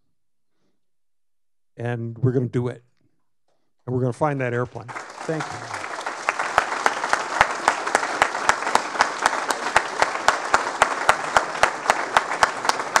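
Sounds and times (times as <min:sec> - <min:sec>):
audience applauding: 0:04.8 - 0:13.0
loud close hand claps: 0:04.9 - 0:13.0.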